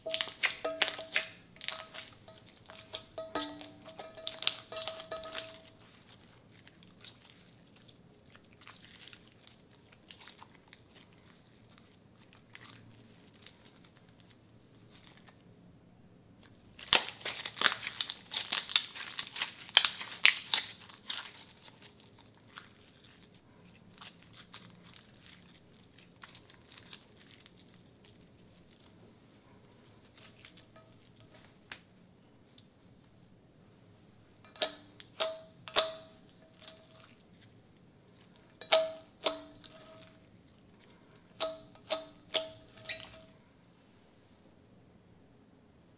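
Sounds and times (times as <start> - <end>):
slime sticky crackles: 0.0 - 15.4, 16.4 - 29.0.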